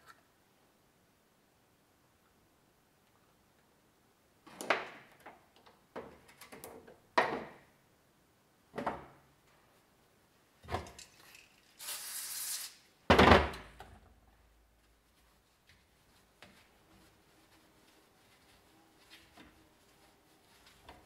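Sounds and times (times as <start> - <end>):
aerosol spray hiss: 11.8 - 12.8.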